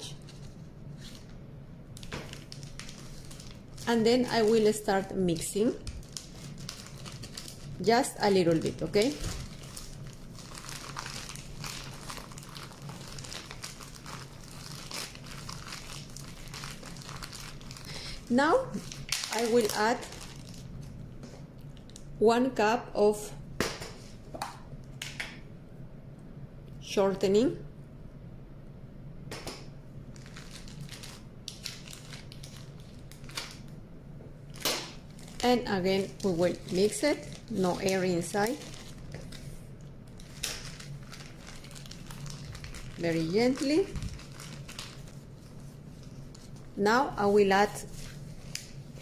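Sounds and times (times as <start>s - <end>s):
plastic bag crinkling: 1.9s - 21.0s, 30.1s - 33.8s, 34.4s - 49.0s.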